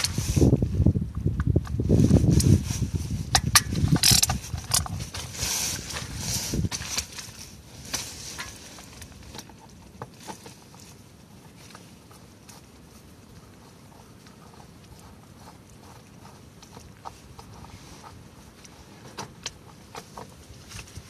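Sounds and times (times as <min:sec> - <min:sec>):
socket wrench clicking: 0:03.4 - 0:04.9.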